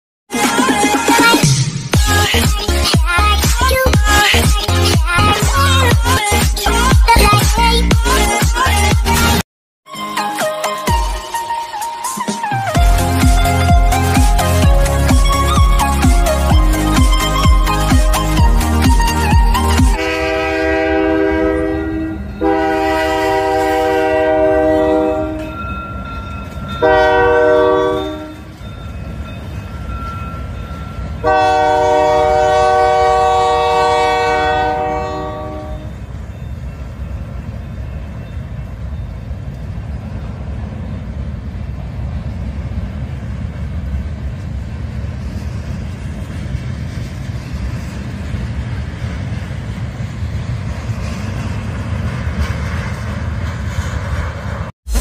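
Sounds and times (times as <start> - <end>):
locomotive horn blasts: 19.9 - 25.6, 26.8 - 28.6, 31.2 - 36.0
freight cars rolling past: 35.8 - 54.7.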